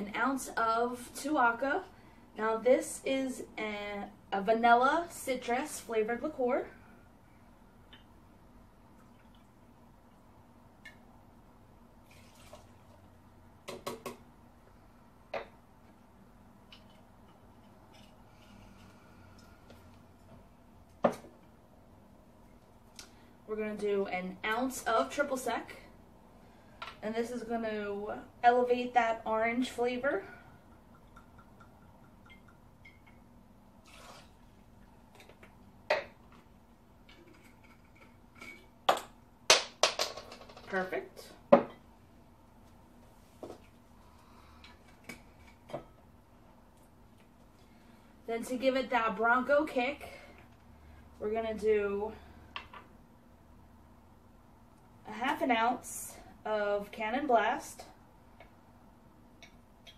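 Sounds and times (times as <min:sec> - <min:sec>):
liquid pouring: 0:08.9 - 0:09.6, 0:12.0 - 0:13.1, 0:33.8 - 0:34.6
glass clinking: 0:30.7 - 0:33.3.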